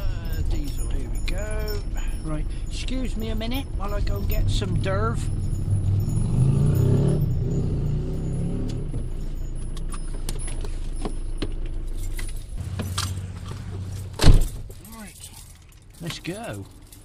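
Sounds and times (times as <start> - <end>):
diesel engine running: 0.0 - 15.8
keys clicking and jingling: 0.0 - 17.0.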